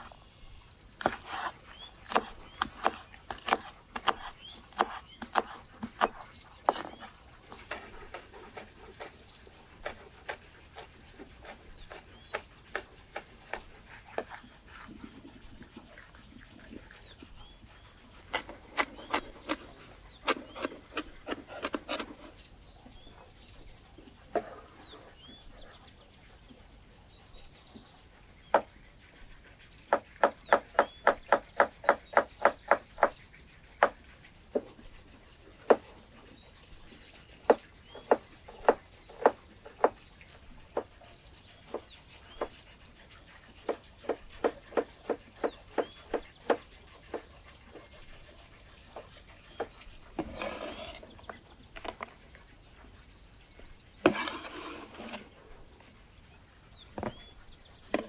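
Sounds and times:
faint birds chirping: 0.0s - 58.0s
knife chopping on wooden board: 1.0s - 9.2s, 9.8s - 14.9s, 18.3s - 22.3s, 29.9s - 33.1s, 37.5s - 40.0s, 43.6s - 47.8s, 54.0s - 55.3s.

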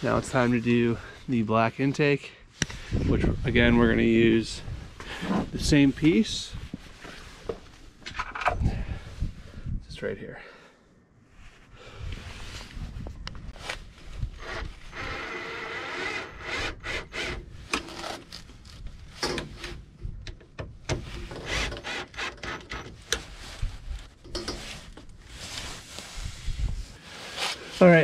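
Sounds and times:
hose rubbing and scraping: 21.0s - 28.0s.

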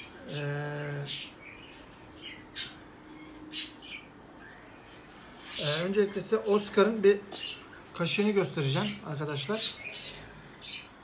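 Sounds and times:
man humming hesitantly: 0.2s - 1.1s
high bird chirps: 1.1s - 6.5s.

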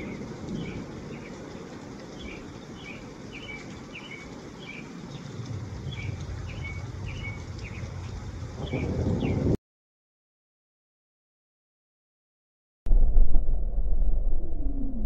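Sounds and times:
thunder rumble: 0.0s - 9.6s, 12.9s - 15.0s
bird chirping: 2.2s - 7.9s.

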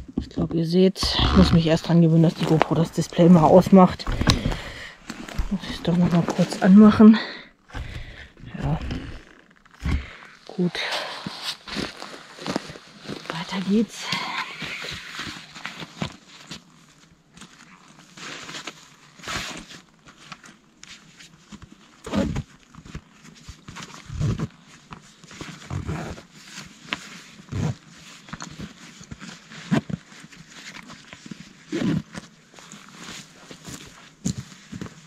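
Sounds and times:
soft low thumps: 0.0s - 10.2s
faint rustling: 0.0s - 35.0s.

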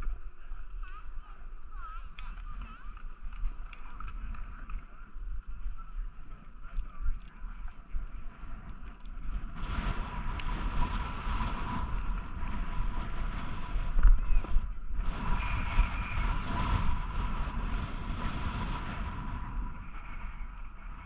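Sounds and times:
wind buffeting microphone: 0.0s - 21.0s
snowboard scraping over snow: 8.1s - 21.0s.

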